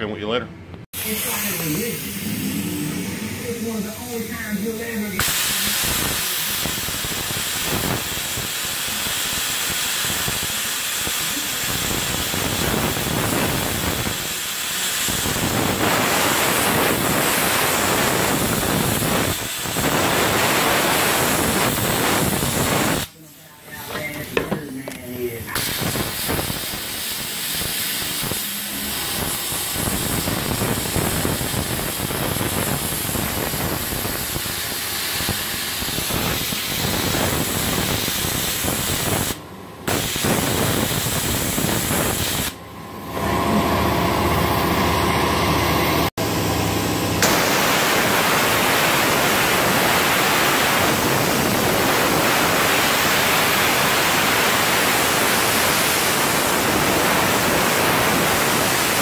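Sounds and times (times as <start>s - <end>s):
sandblaster hissing: 1.0s - 24.6s, 25.5s - 42.6s, 47.2s - 59.0s.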